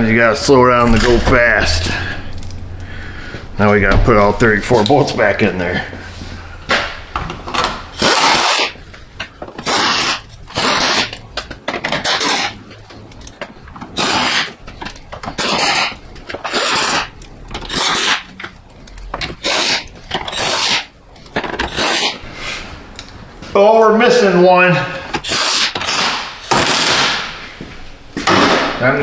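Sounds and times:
air impact wrench bursts: 7.9s - 8.9s, 9.5s - 11.2s, 11.9s - 12.6s, 13.8s - 18.4s, 19.3s - 20.9s, 25.1s - 27.5s.

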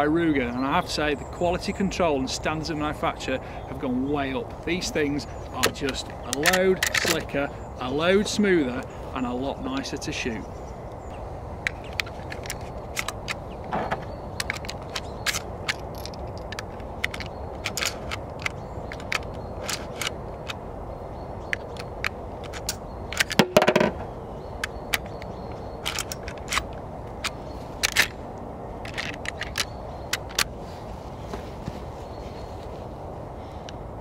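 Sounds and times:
cartridges clicking into rifle magazine: 5.6s - 7.2s, 11.7s - 13.4s, 14.4s - 20.6s, 21.5s - 23.9s, 24.6s - 28.2s, 28.8s - 30.5s.

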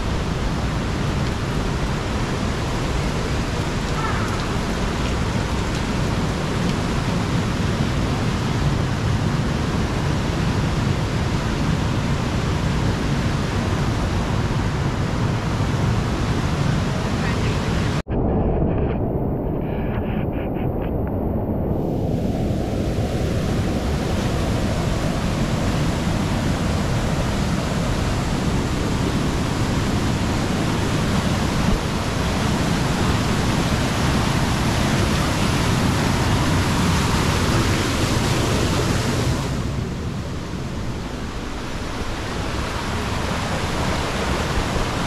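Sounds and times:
water rushing down cascades: 0.0s - 10.6s, 21.8s - 45.0s.

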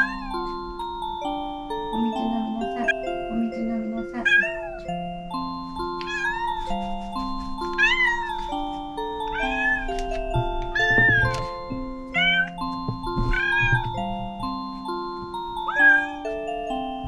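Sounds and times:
cat meowing: 0.0s - 0.4s, 4.2s - 4.8s, 6.0s - 6.6s, 7.8s - 8.4s, 9.3s - 9.9s, 12.2s - 12.6s, 13.4s - 13.9s, 15.7s - 16.2s
background music with held notes: 0.0s - 17.0s.

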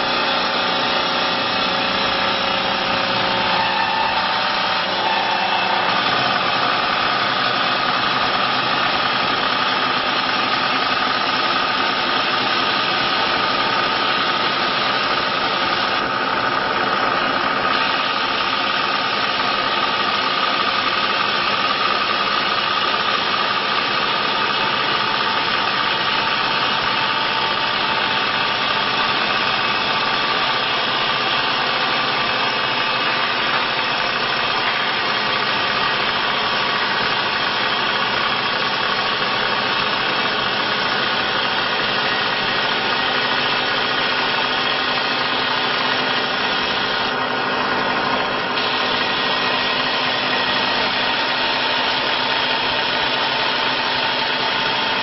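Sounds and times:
wood lathe whining: 0.0s - 55.0s.

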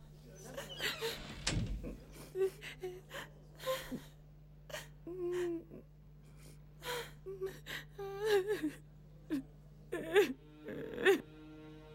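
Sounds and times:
woman sobbing: 1.8s - 11.2s.

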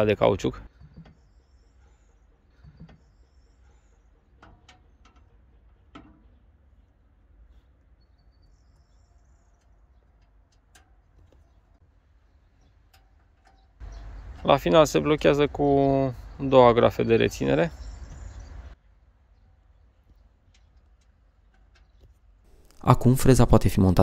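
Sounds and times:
faint birdsong: 0.0s - 24.0s
faint metal clicks and knocks: 0.7s - 14.6s, 19.3s - 22.8s.

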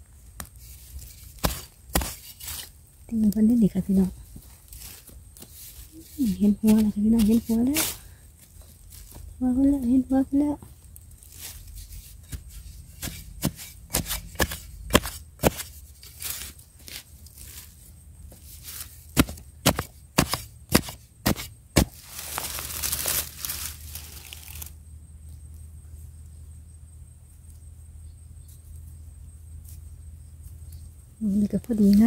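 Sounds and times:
scraping in dry soil: 0.0s - 24.8s
digging bar knocking soil: 0.2s - 9.6s, 11.2s - 24.7s.

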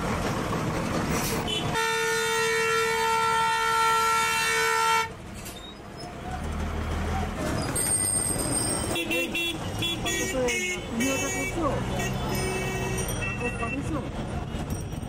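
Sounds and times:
street traffic noise: 0.0s - 15.0s
vehicle horn long blast: 1.5s - 5.1s, 9.0s - 13.0s.

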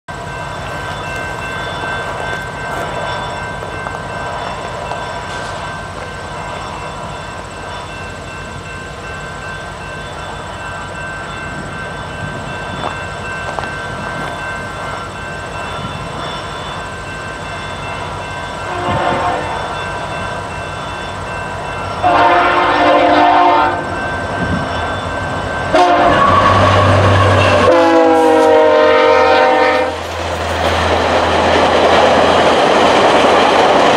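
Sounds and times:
locomotive air horn blasts: 18.6s - 19.8s, 22.0s - 24.0s, 25.7s - 30.0s.

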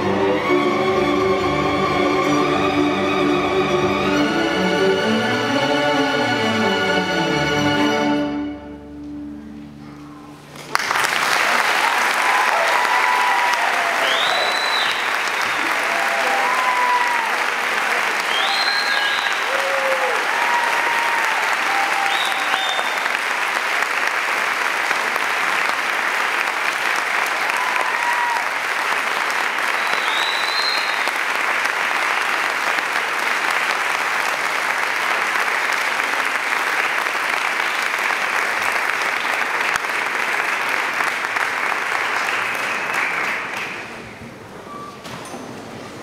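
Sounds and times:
audience applauding: 10.5s - 44.2s.

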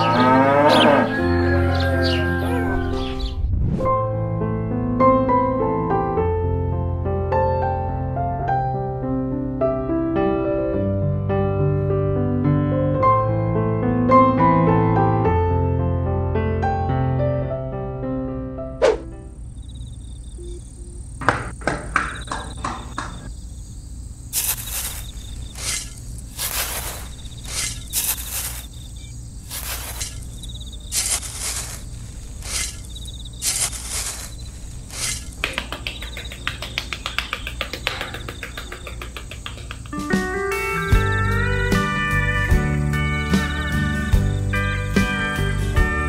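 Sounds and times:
faint cricket-like chirring: 19.1s - 41.6s
trowel scraping damp sand: 24.3s - 35.4s.

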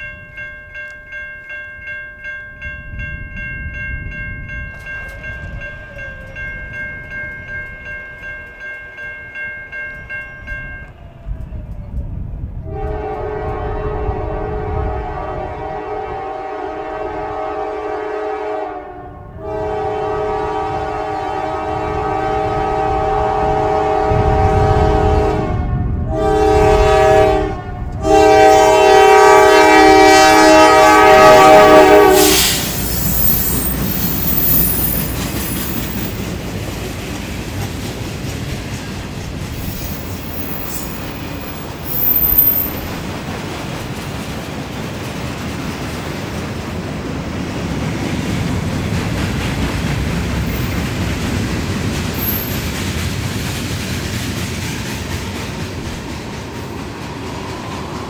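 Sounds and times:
low rumble of locomotives: 0.0s - 58.0s
locomotive air horn blasts: 12.6s - 33.7s.

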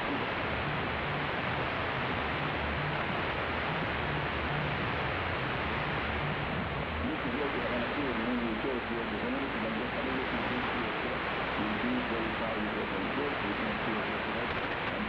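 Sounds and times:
faint broadcast voice: 0.0s - 0.5s, 6.9s - 15.0s
radio static hiss: 0.0s - 15.0s.

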